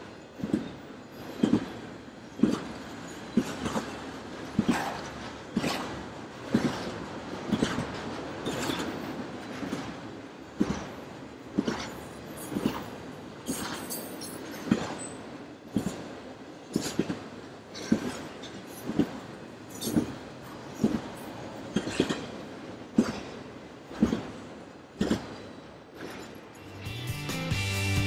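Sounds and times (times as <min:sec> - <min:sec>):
train wheels clicking over rail joint: 0:00.0 - 0:26.7
freight cars rolling rumble: 0:00.0 - 0:28.0.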